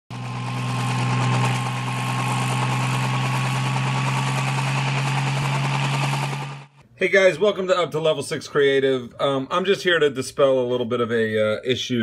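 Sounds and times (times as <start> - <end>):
drone propellers buzzing: 0.1 - 6.8.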